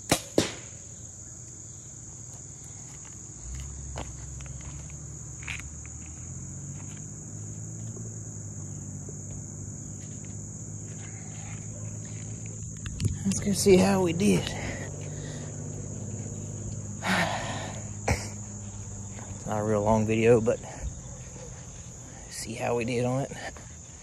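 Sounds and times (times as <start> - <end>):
crickets chirping: 0.0 - 24.0
faint footsteps walking: 2.1 - 16.9, 18.3 - 22.6.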